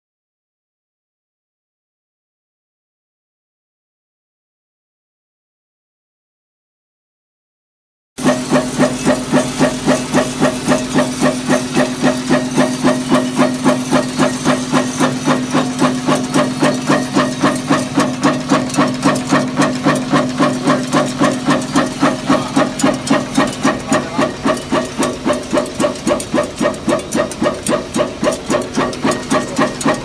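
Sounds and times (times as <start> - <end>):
machine clacking: 8.2 - 30.0
machine humming: 8.2 - 30.0.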